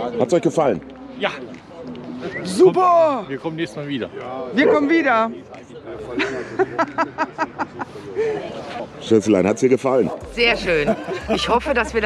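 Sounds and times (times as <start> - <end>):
man laughing: 10.8 - 11.8.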